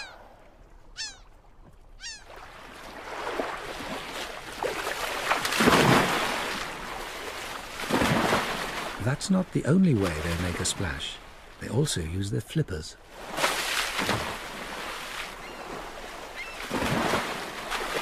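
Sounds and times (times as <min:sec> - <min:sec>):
water noise: 0:00.0 - 0:18.0
whale tail slaps on water: 0:13.3 - 0:15.0.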